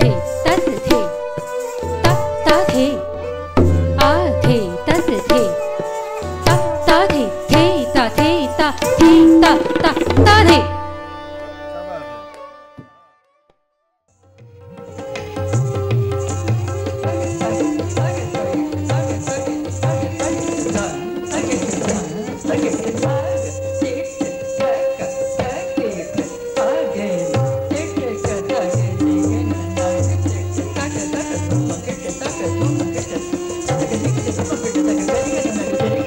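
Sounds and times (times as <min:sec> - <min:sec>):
tabla drumming: 0:00.0 - 0:11.1, 0:14.2 - 0:36.0
ankle bells jingling: 0:04.2 - 0:10.1, 0:14.8 - 0:36.0.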